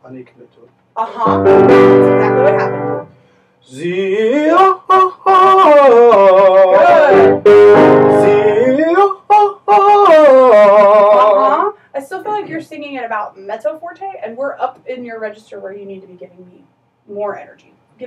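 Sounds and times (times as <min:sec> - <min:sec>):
piano accompaniment: 0:01.2 - 0:03.1, 0:06.8 - 0:08.8
tenor singing with vibrato: 0:03.8 - 0:11.8.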